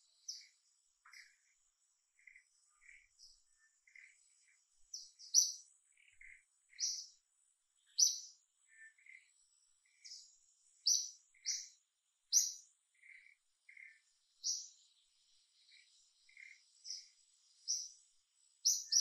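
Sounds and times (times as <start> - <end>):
softer lower chirps: 0.0 - 7.2, 7.8 - 19.0.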